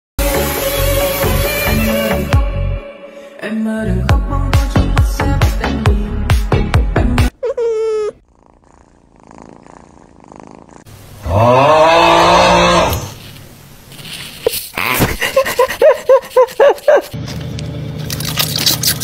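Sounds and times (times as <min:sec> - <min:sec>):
cat squeaky chirps: 0:07.3 - 0:08.2.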